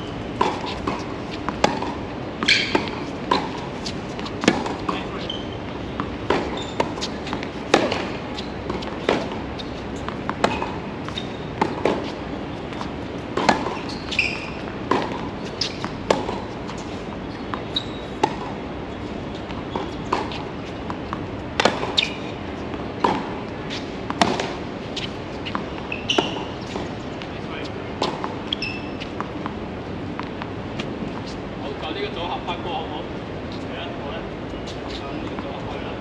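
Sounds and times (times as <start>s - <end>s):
racket striking tennis ball: 0.0s - 5.4s, 6.0s - 18.7s, 19.4s - 27.0s, 27.9s - 29.6s
tennis ball bouncing: 0.0s - 31.4s.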